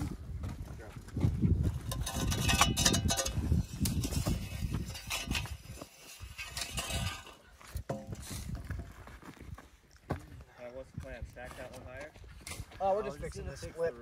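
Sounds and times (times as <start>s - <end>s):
shovels digging into dirt: 1.9s - 8.8s.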